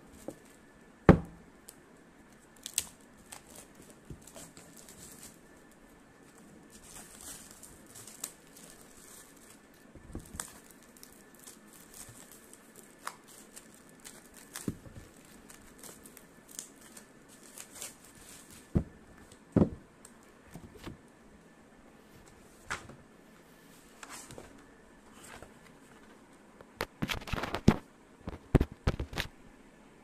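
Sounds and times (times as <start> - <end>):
plastic packaging rustling: 2.2 - 21.0, 26.8 - 29.3.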